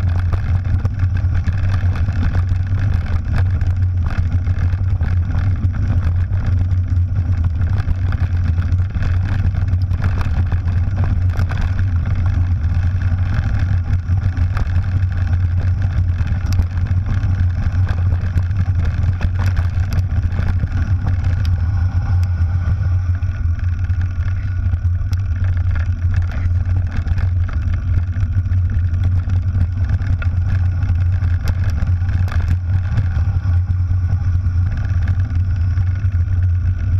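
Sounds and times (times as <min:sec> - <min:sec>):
tyres crunching over gravel: 0:00.0 - 0:22.2
bike rattles and clicks: 0:00.0 - 0:36.9
wind rumble on microphone: 0:00.0 - 0:36.9.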